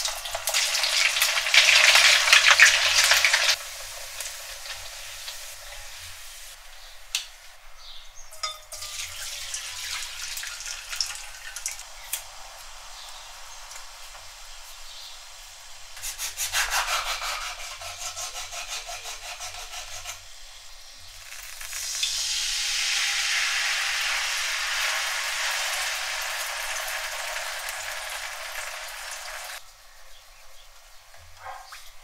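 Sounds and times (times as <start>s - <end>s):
tomato sauce sizzling in hot oil: 0.0s - 6.7s, 8.7s - 16.0s, 20.4s - 29.6s.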